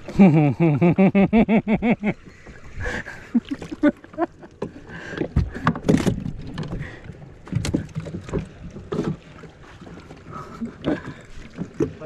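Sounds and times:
low rumble of wind and water: 0:00.0 - 0:12.0
knocks and thumps in boat: 0:02.0 - 0:12.0.

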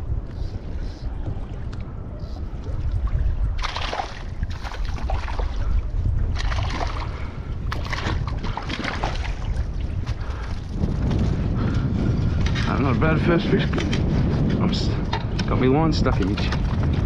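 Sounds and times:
wind buffeting microphone: 0:00.0 - 0:17.0
fish splashing water: 0:03.5 - 0:05.7, 0:06.3 - 0:09.7.

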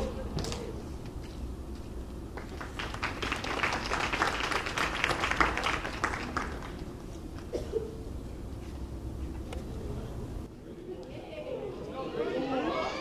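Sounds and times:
crowd applauding: 0:02.3 - 0:06.9.

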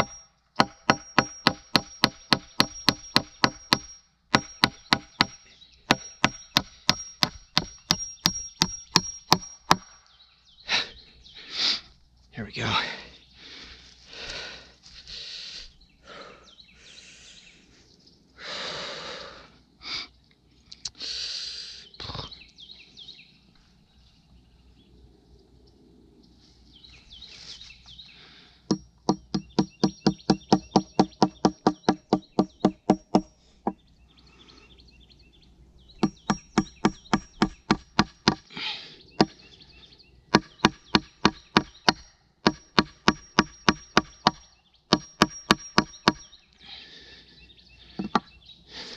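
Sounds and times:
rustling and scraping: 0:26.3 - 0:28.0
power tool knocking rapidly: 0:29.1 - 0:33.2.

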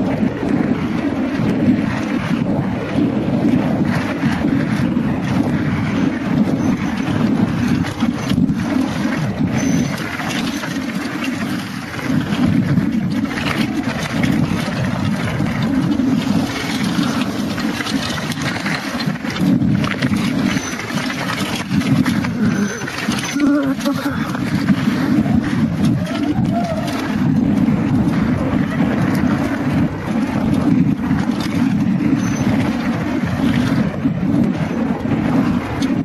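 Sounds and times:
bike rattling over rough ground: 0:00.0 - 0:36.0
wind buffeting microphone: 0:00.0 - 0:36.0.

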